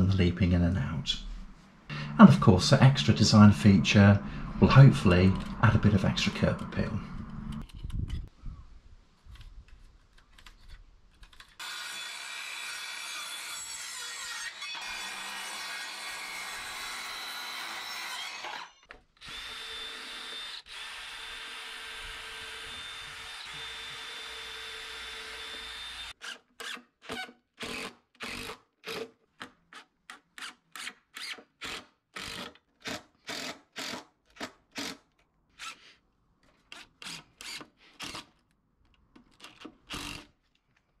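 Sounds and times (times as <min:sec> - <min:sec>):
circular saw cutting wood: 0:11.6 - 0:26.8
cordless drill bursts: 0:17.1 - 0:26.8.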